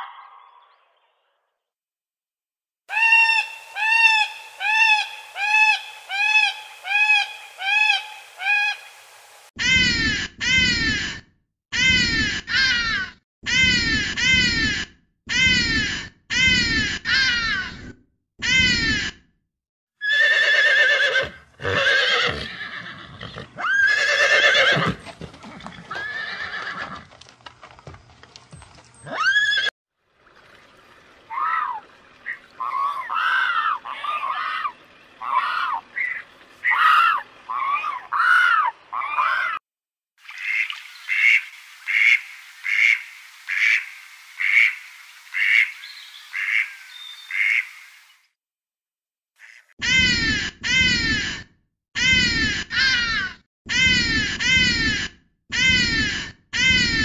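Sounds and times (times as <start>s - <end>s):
bird calls: 2.9s - 9.1s, 40.3s - 48.2s
horses neighing: 20.0s - 27.4s
sharp sweeping bird calls: 40.3s - 48.2s.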